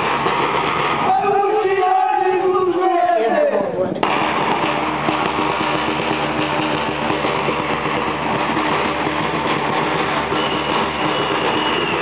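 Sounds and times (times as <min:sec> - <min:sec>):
dense drum roll: 0:04.0 - 0:12.0.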